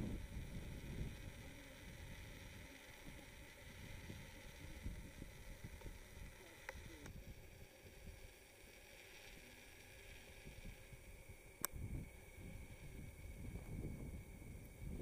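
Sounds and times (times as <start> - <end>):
small clicks: 1.1 - 7.2
wind buffeting microphone: 11.7 - 15.0.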